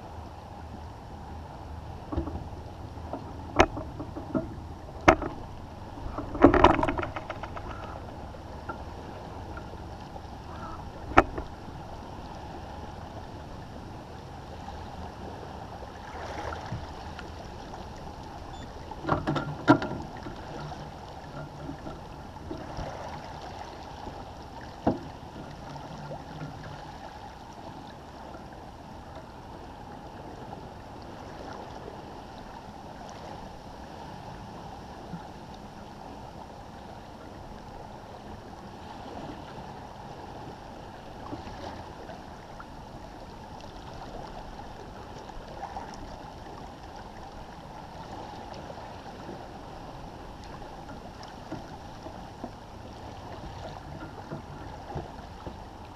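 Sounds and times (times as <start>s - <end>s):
water washing along a boat hull: 0.0s - 55.9s.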